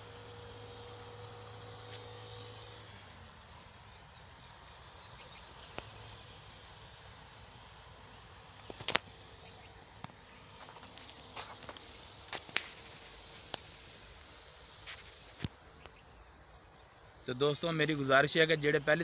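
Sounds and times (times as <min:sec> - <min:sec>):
faint outdoor hiss: 0:00.0 - 0:19.0
sharp clicks and rustles: 0:08.6 - 0:16.0.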